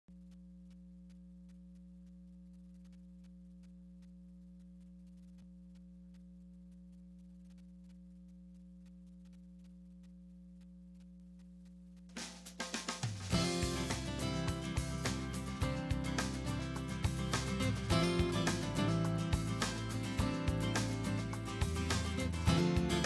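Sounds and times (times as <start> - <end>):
faint electrical hum: 0.1 - 23.0
theme music with drums: 12.2 - 23.0.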